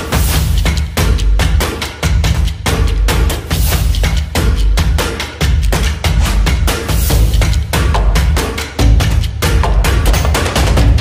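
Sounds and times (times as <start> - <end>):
music with steady drum beat: 0.0 - 11.0
heavy bass: 2.2 - 11.0.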